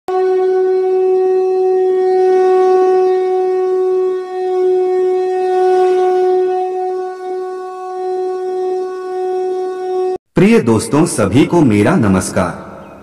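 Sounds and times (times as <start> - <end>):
conch shell blown: 0.1 - 10.2.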